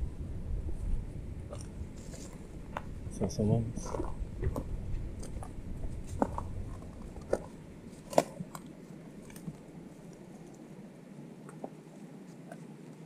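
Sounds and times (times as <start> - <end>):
low rumble: 0.0 - 10.9
footsteps crunching on gravel: 3.8 - 8.5.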